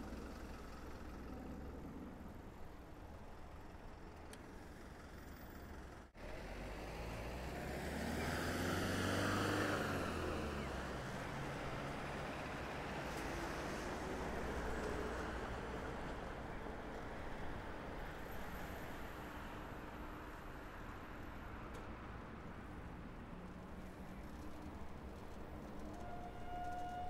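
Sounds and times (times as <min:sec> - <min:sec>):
low hum of street noise: 0:00.0 - 0:27.0
motor vehicle passing close: 0:06.6 - 0:10.9.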